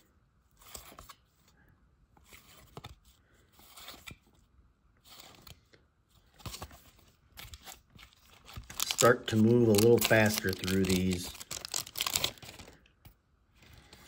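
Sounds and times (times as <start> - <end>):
paper cards rustling and snapping: 6.2 - 14.0.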